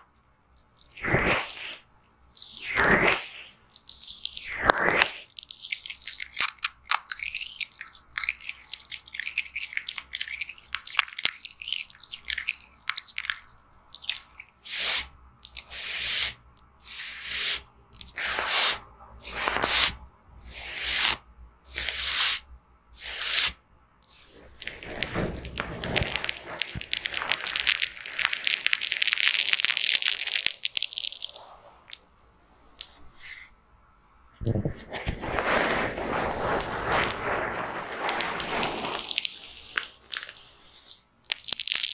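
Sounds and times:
tissue rubbing: 15.7 - 32.0, 34.5 - 40.9
foam crackling on microphone: 24.6 - 31.9, 34.5 - 40.7.

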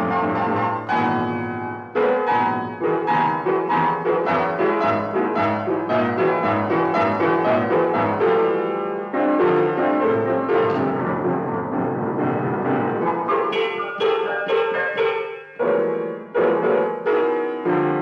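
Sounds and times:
piano tone clusters struck: 13.0 - 16.4.

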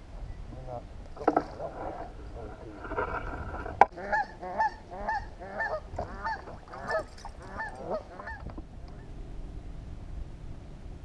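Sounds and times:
low steady rumble: 0.0 - 11.0
bird calling: 3.9 - 9.1.

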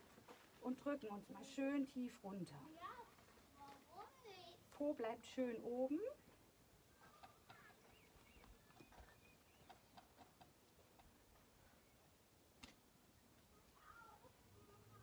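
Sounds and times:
small ticks: 7.1 - 11.4.

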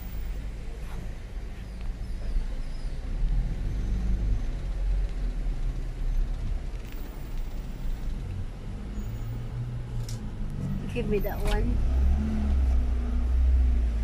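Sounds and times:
car engine rumble from inside: 0.0 - 14.0.

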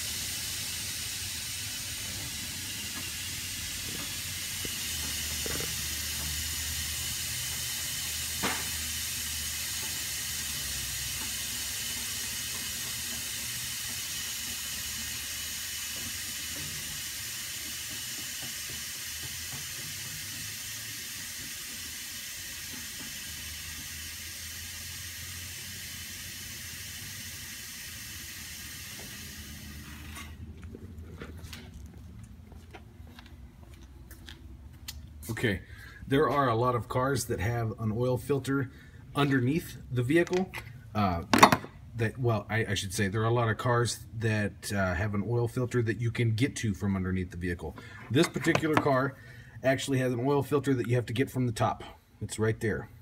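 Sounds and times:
hydraulic lift release valve hissing: 0.0 - 30.4.

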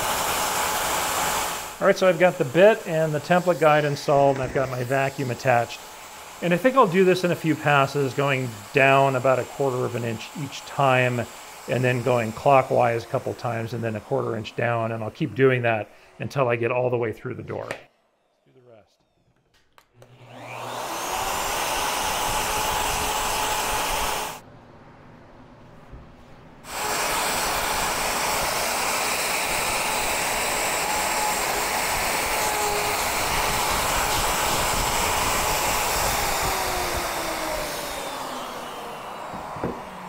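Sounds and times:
router motor whine: 0.0 - 16.0, 20.0 - 24.4, 26.6 - 40.0
vacuum rushing: 26.6 - 40.0.

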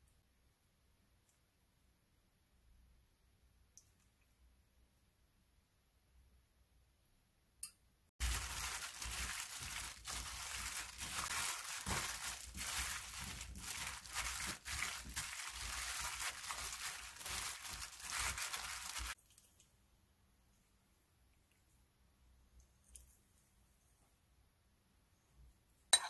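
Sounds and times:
wet cubes shuffling in pan: 8.2 - 19.2
plastic glove crinkling: 8.2 - 19.6.

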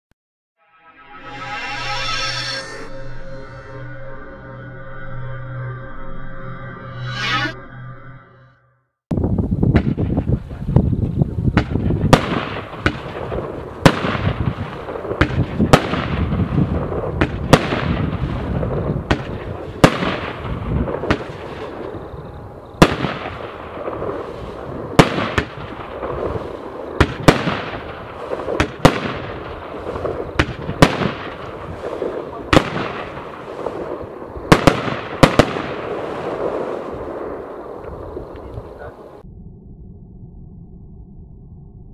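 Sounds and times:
firework crackling: 9.4 - 39.2
firework bangs: 9.6 - 39.2.

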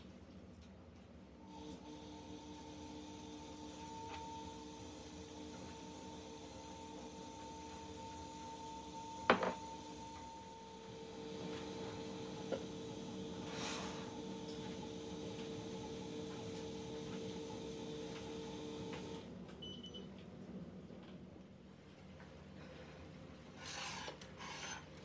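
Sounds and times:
steady hum of held tones: 1.4 - 20.1.

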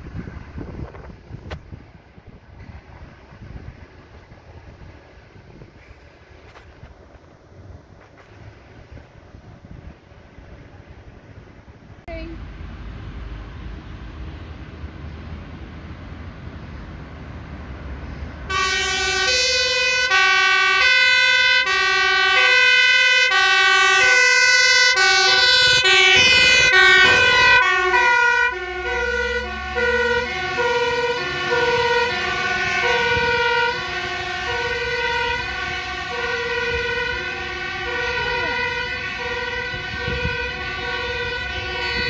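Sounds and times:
truck engine rumble: 0.0 - 42.0
two-tone siren: 18.5 - 42.0.

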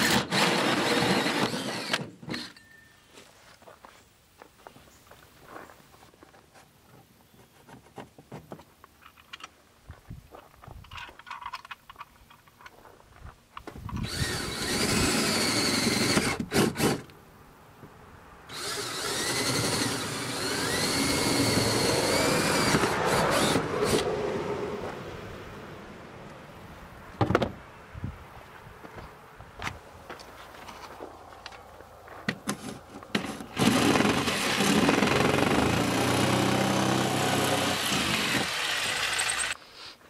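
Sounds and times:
cordless drill whining: 0.0 - 2.6, 14.0 - 17.1, 18.5 - 24.1.

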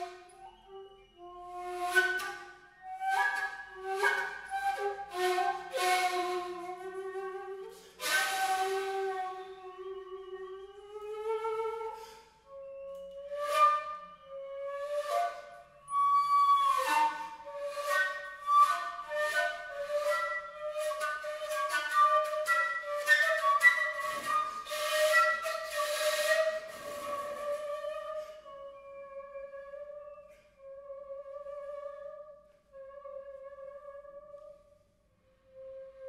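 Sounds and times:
contemporary chamber music: 0.0 - 36.0
breathy airy flute attacks: 1.9 - 14.4, 16.7 - 29.0.

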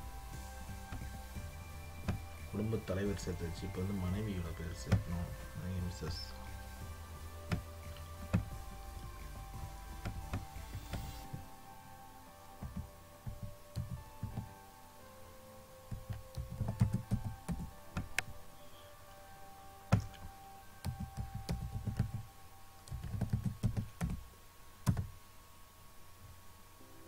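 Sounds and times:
typing on computer keyboard: 15.9 - 18.2, 20.8 - 24.2.

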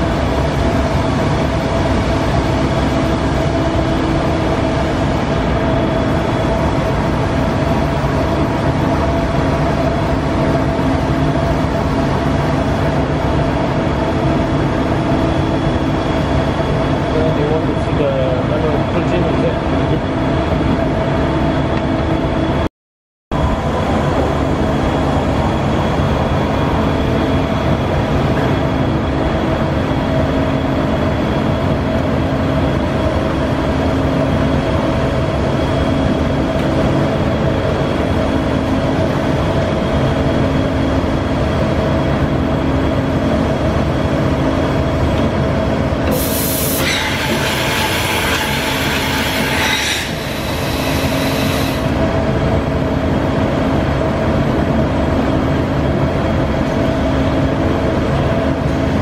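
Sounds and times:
boring mill humming with whine: 0.0 - 22.7, 23.4 - 59.0
loud hiss: 46.1 - 51.9.

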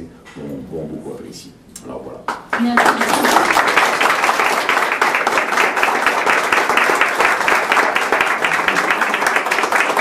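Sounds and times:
people applauding: 2.3 - 10.0.

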